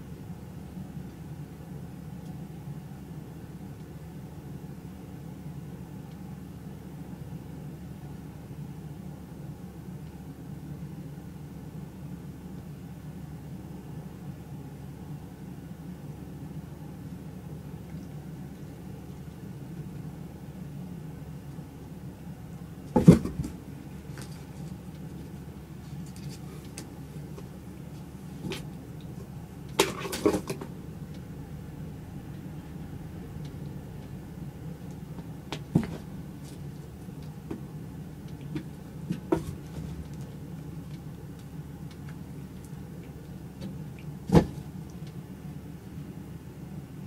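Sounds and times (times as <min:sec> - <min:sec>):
steady low hum: 0:00.0 - 0:47.0
cardboard box thump and rustle: 0:22.9 - 0:23.6, 0:35.6 - 0:36.1, 0:38.6 - 0:40.0, 0:44.3 - 0:44.6.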